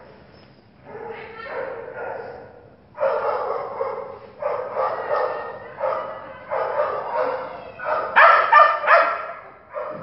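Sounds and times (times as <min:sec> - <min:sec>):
dog barking excitedly: 0:00.9 - 0:10.0.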